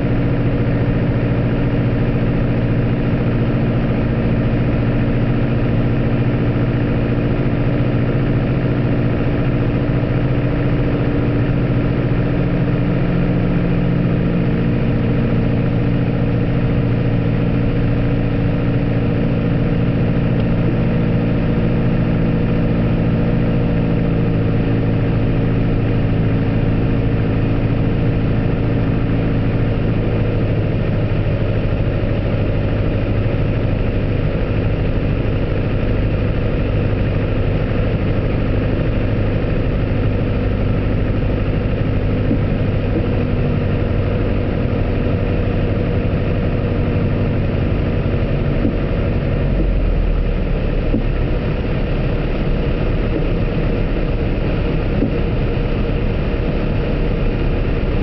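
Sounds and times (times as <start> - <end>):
airplane engine droning: 0.0 - 58.0.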